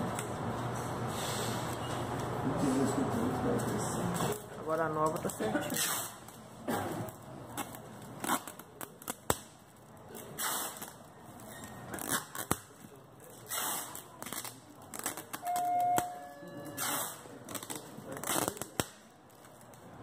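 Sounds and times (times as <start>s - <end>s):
packing tape pulled off roll: 5.0s - 6.4s, 7.0s - 16.1s, 16.8s - 20.0s
short beep: 15.4s - 17.0s.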